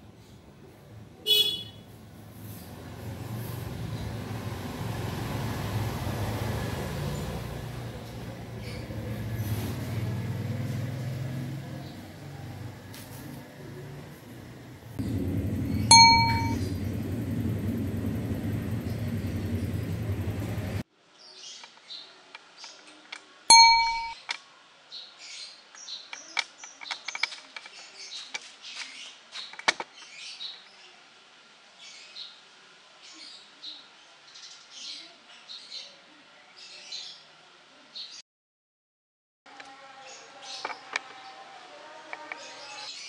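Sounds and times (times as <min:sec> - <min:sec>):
low rumbling noise: 0:13.5 - 0:20.8
bright bell ding: 0:15.9 - 0:16.8, 0:23.5 - 0:24.2
short high chirps: 0:23.5 - 0:24.2.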